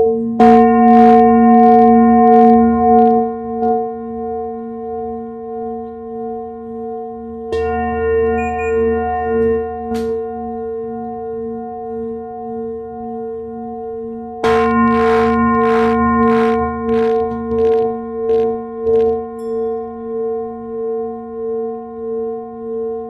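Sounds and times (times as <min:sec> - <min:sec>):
singing bowl humming: 0:00.0 - 0:23.0
metallic strike on bowl: 0:05.0 - 0:21.2.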